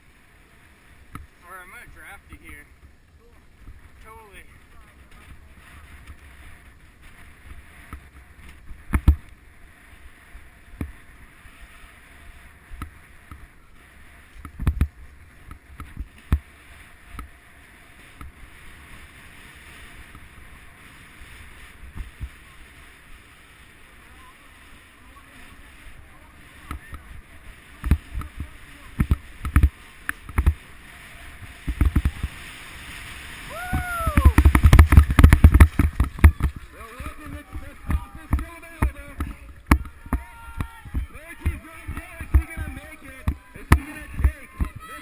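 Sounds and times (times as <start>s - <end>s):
skis sliding over snow: 0.0s - 45.0s
wind rumble on microphone: 0.0s - 45.0s
sharp thumps: 34.2s - 36.6s.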